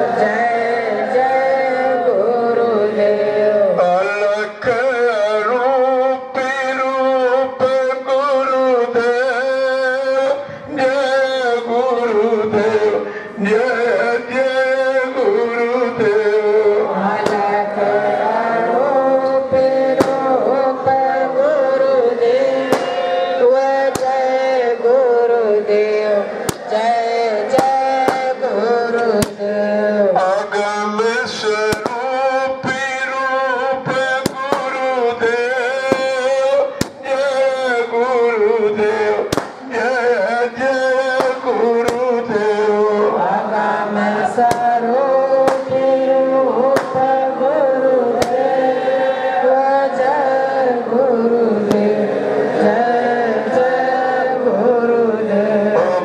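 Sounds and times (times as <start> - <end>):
hymn singing: 0.0 - 56.0
firecracker pops: 17.2 - 17.5, 20.0 - 20.4, 22.7 - 23.1, 23.9 - 24.2, 26.4 - 26.7, 27.6 - 28.3, 29.2 - 29.5, 31.7 - 32.8, 33.9 - 34.9, 35.8 - 36.2, 36.8 - 37.1, 39.3 - 39.7, 41.2 - 42.1, 44.5 - 44.8, 45.4 - 46.0, 46.7 - 47.2, 48.2 - 48.5, 51.7 - 52.0.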